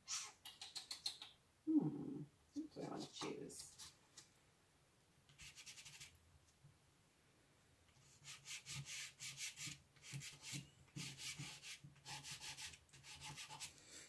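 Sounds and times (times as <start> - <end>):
chalk pastel scratching on paper: 5.4 - 6.2, 8.0 - 13.8.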